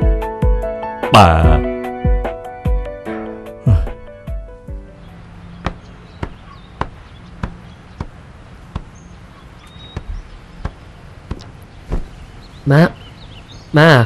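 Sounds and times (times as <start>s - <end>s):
short sharp knocks: 5.6s - 9.0s, 9.9s - 12.2s.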